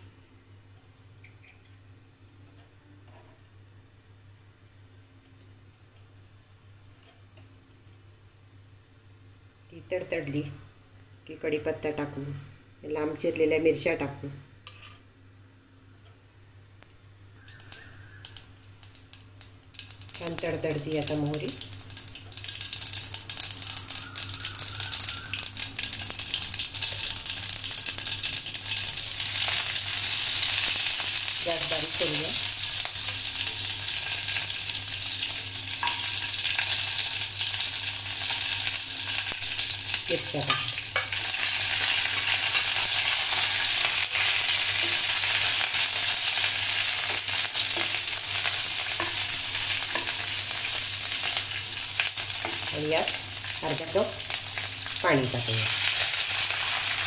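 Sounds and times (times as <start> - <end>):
mustard seeds popping in hot oil: 16.8 - 57.0
leaves sizzling in oil: 17.4 - 57.0.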